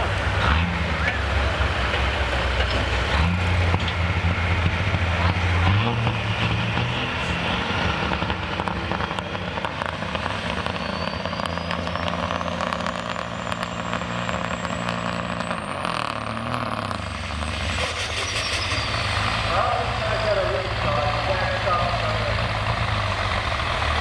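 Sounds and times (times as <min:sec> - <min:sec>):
diesel truck engine running: 0:00.0 - 0:24.0
turbocharger whistle: 0:10.5 - 0:16.1, 0:16.9 - 0:20.4.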